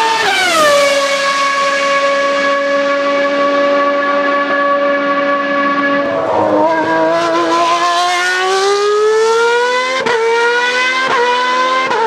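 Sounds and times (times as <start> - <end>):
race car engine at high revs: 0.0 - 12.0.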